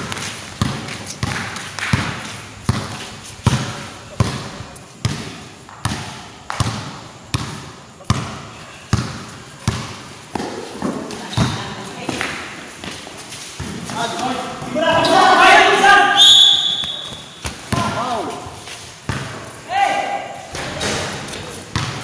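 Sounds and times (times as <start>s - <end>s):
basketball dribbling with echo: 0.0s - 12.0s, 16.7s - 18.4s, 19.0s - 19.5s, 21.7s - 22.0s.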